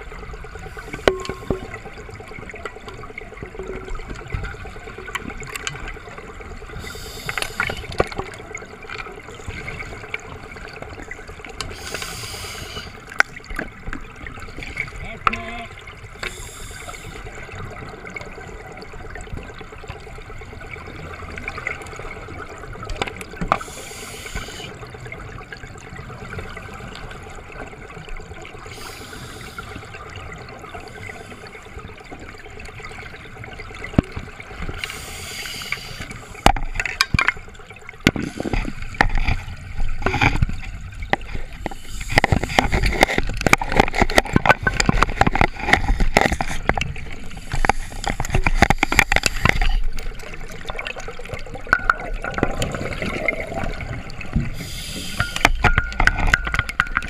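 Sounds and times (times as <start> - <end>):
bubbling: 0.0 - 57.0
steady underwater hum: 0.0 - 57.0
scuba regulator breathing hiss: 6.8 - 7.9, 11.7 - 13.0, 16.3 - 17.3, 23.6 - 24.8, 28.7 - 29.8, 34.8 - 36.4, 54.5 - 55.4.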